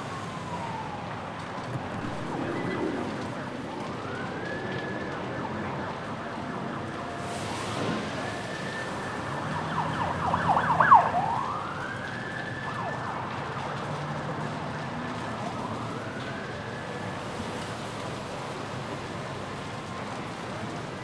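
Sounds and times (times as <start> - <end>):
emergency sirens wailing: 0.0 - 21.0
steady rushing noise: 1.6 - 4.7.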